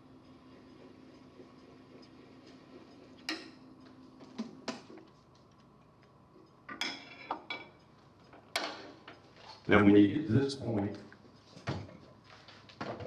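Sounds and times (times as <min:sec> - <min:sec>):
tools clinking and knocking: 0:06.7 - 0:09.2.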